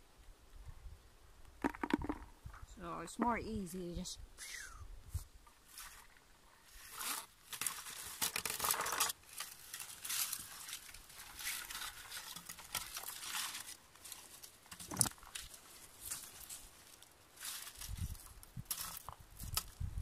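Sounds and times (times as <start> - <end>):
berry picker rustling through bushes: 5.1 - 20.0.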